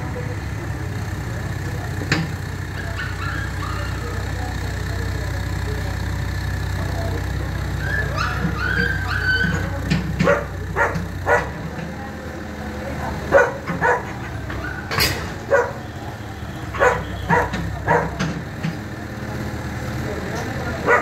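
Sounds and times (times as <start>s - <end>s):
low engine hum: 0.0s - 21.0s
dog barking: 7.9s - 9.6s, 10.2s - 11.6s, 13.2s - 16.0s, 16.7s - 18.3s, 20.8s - 21.0s.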